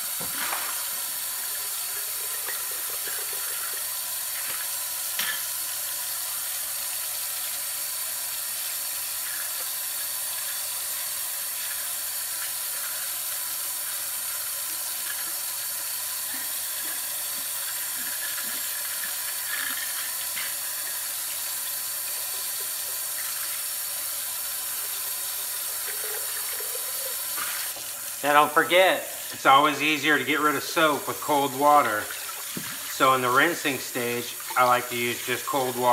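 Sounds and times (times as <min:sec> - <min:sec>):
tap running into a sink: 0:00.0 - 0:05.6, 0:32.0 - 0:33.0.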